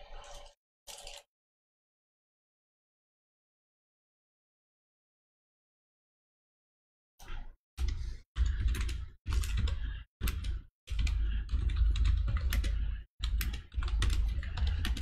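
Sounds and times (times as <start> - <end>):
typing on computer keyboard: 7.8 - 15.0.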